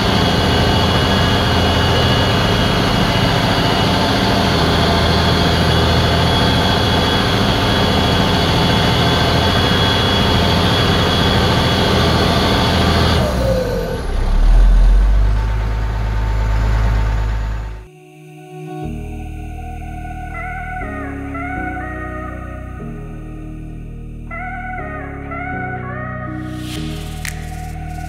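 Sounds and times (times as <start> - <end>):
tractor diesel engine under load: 0.0 - 17.9
high whine: 0.0 - 28.0.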